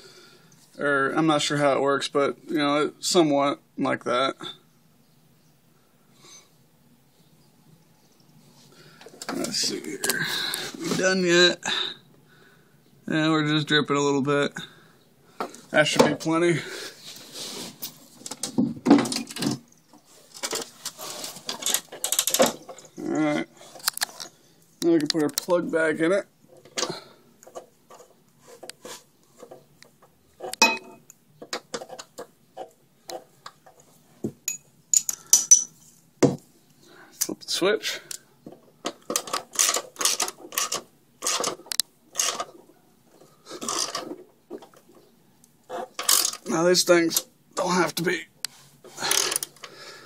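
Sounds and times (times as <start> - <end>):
tools clattering and scraping: 17.0 - 23.0, 26.5 - 36.1, 38.5 - 45.0, 45.7 - 46.5.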